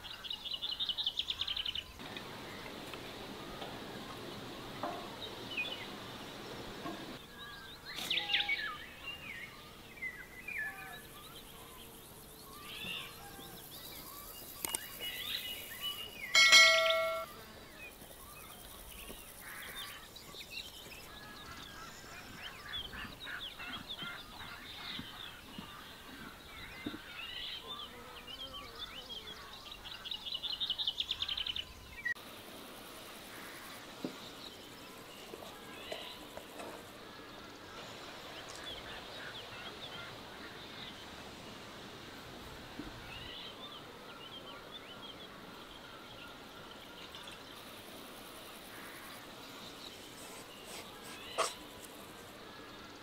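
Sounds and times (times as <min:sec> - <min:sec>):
steady hiss: 0:00.0 - 0:27.8, 0:29.7 - 0:53.0
small birds chirping: 0:00.0 - 0:32.2, 0:42.8 - 0:53.0.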